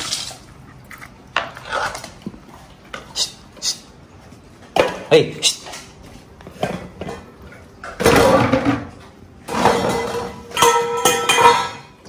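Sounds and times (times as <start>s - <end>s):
metal bowl clattering on tile floor: 6.6s - 12.0s.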